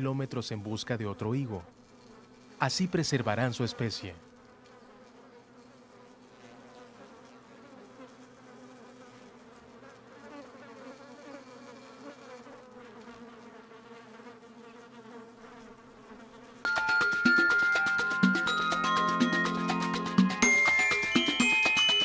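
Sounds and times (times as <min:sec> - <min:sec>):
insect buzzing: 0:00.6 - 0:22.0
loud musical jingle: 0:16.7 - 0:22.0.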